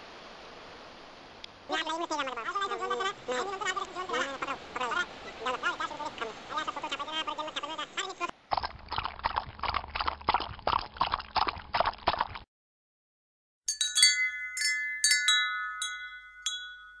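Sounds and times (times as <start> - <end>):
wind chime ringing: 13.7 - 17.0.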